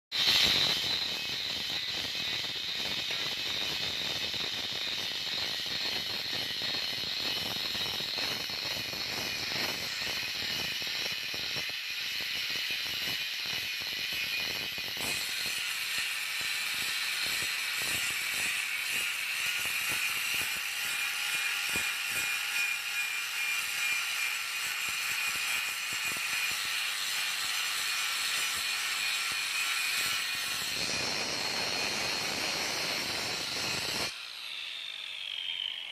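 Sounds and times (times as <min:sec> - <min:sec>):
angle grinder whining: 0:00.2 - 0:35.9
grinding disc scraping steel: 0:26.3 - 0:35.9.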